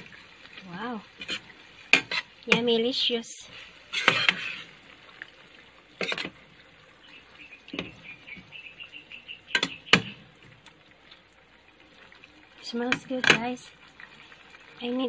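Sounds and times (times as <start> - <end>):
food bubbling: 0.0 - 15.0
metal spoon stirring in pan: 1.0 - 5.2, 6.0 - 6.4
spoon clicking on pan: 9.5 - 10.2.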